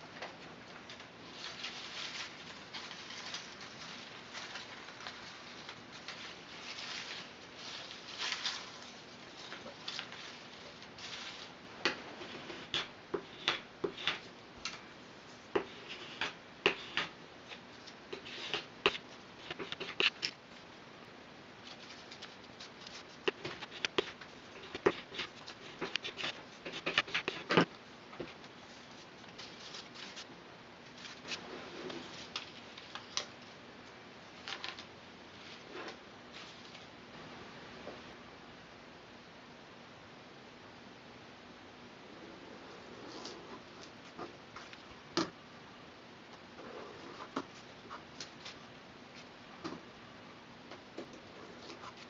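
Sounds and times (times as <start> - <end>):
straw rustling and crackling: 1.2 - 11.6.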